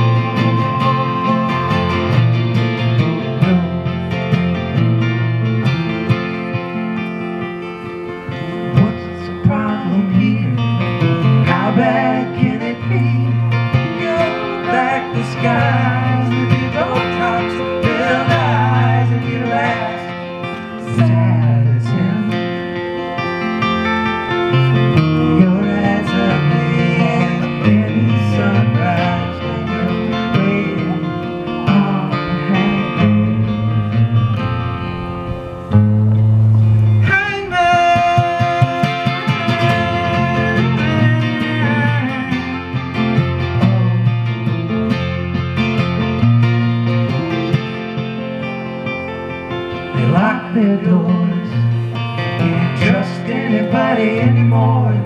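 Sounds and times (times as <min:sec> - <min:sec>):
person singing: 0:00.0 - 0:04.0, 0:08.3 - 0:23.2, 0:24.7 - 0:34.2, 0:36.8 - 0:44.4, 0:49.9 - 0:55.0
acoustic guitar: 0:00.0 - 0:55.0
electric guitar: 0:00.0 - 0:55.0.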